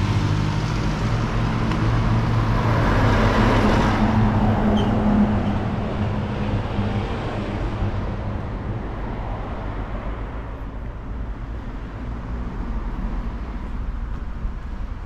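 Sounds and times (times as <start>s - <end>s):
vehicle passing by: 0.0s - 8.3s
low traffic rumble: 0.0s - 15.0s.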